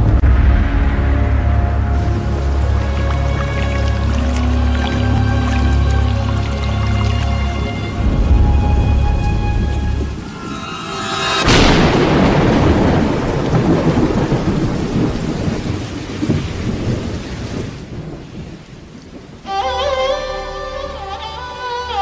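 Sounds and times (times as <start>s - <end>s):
thunderclap rumbling: 0.0s - 5.0s, 8.0s - 19.4s
rain: 0.0s - 22.0s.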